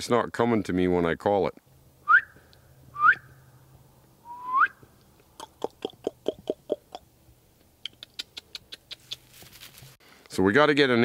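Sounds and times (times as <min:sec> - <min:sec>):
short rising whistle: 0:02.1 - 0:03.4, 0:04.2 - 0:04.8
mouth clicks: 0:04.3 - 0:09.3.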